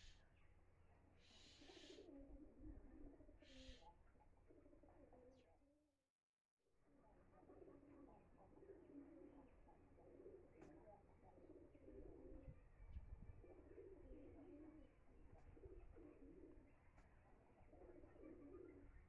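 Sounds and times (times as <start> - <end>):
pigeons cooing: 1.4 - 3.8, 7.4 - 12.6, 13.4 - 16.9, 17.5 - 19.0.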